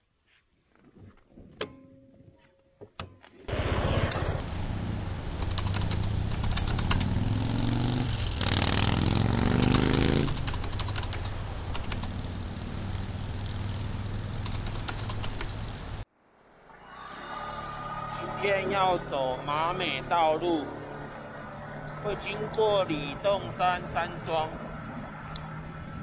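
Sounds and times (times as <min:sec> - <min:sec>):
wind and road noise: 0:03.5 - 0:16.0, 0:18.3 - 0:26.0
rapid crackling clicks: 0:04.4 - 0:16.0
scooter engine running: 0:04.4 - 0:16.0.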